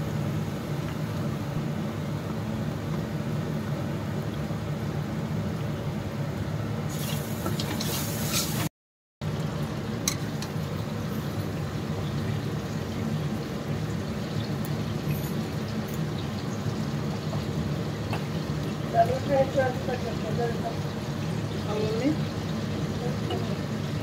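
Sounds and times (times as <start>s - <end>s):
spices sizzling in a pan: 6.9s - 8.7s, 9.3s - 24.0s.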